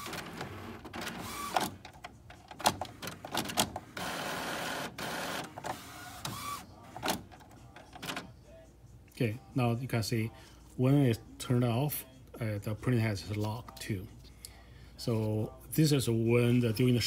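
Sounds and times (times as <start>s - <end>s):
printer carriage motor running: 0.0s - 2.0s, 2.6s - 7.3s.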